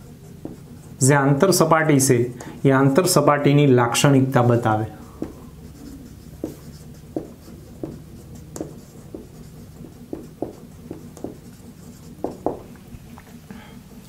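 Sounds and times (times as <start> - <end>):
marker pen writing on whiteboard: 0.0 - 13.4.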